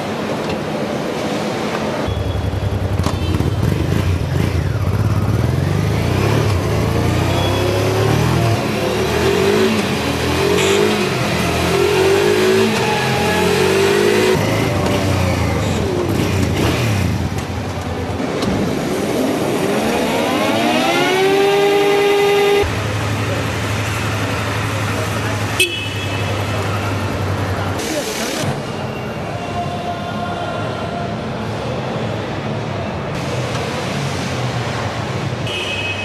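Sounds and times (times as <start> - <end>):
motorbike engine revving: 2.4 - 25.6.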